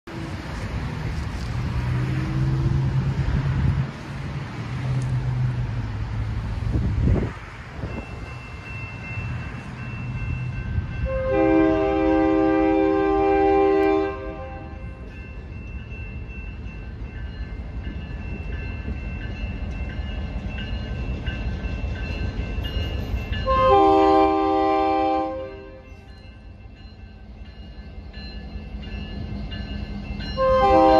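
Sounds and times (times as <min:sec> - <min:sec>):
cars driving past: 0:00.1 - 0:10.5
electronic crossing bells ringing: 0:07.8 - 0:11.5, 0:14.6 - 0:24.6, 0:25.2 - 0:30.9
locomotive horn chord: 0:11.0 - 0:15.0, 0:23.4 - 0:25.9, 0:30.4 - 0:30.9.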